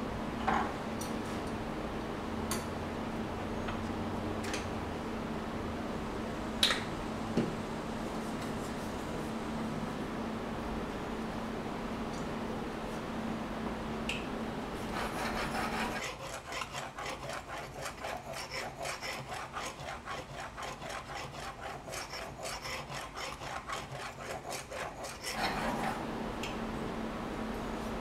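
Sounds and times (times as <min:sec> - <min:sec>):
blade scraping on oil stone: 0:14.9 - 0:26.0.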